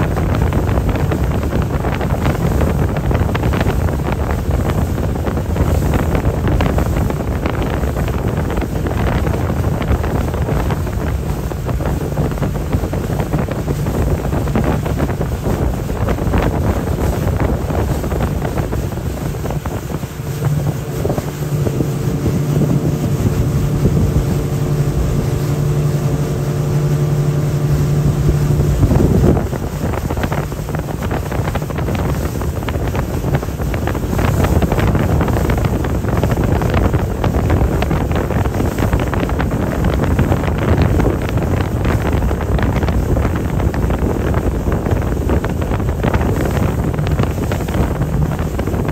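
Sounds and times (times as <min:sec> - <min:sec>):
boat engines droning: 0:00.0 - 0:48.9
rushing water: 0:00.0 - 0:48.9
steady pitched engine hum: 0:00.0 - 0:48.9
wind buffeting microphone: 0:00.0 - 0:48.9.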